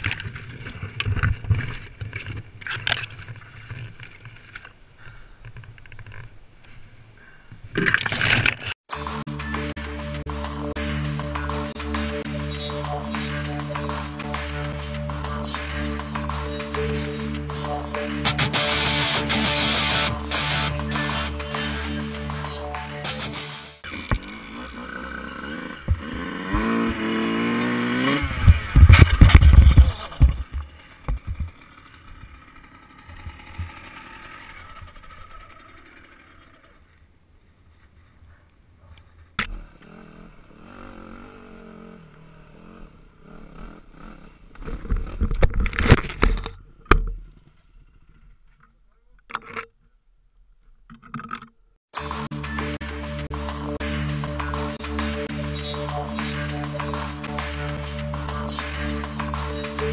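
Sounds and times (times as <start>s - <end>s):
dirt bike engine revving: 23.8s - 37.0s, 39.4s - 45.4s
crash thuds and scraping: 25.7s - 32.3s.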